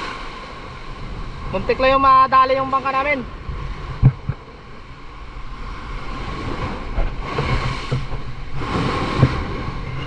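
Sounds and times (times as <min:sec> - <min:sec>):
waves surging and splashing: 0:00.0 - 0:10.0
wind rumble on microphone: 0:00.0 - 0:10.0
low thumps: 0:03.4 - 0:10.0.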